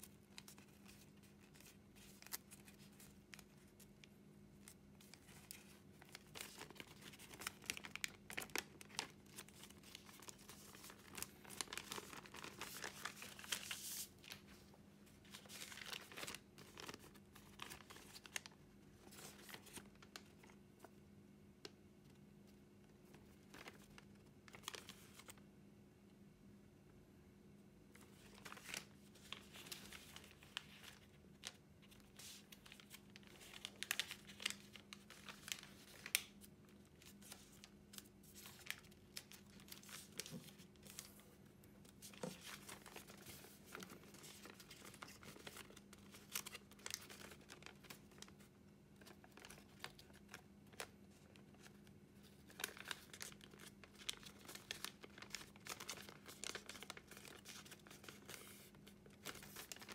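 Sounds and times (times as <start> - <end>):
paper crinkling and rustling: 0.0 - 21.0, 22.9 - 25.4, 28.0 - 59.9
faint steady hum: 0.0 - 59.9
paper crackling as creased: 4.6 - 14.6, 28.1 - 36.4, 41.9 - 48.4, 49.0 - 59.9.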